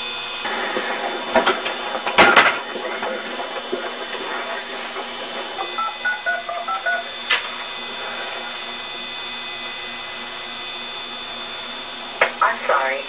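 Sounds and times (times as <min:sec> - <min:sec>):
telephone keypad beeps: 0:05.7 - 0:07.1.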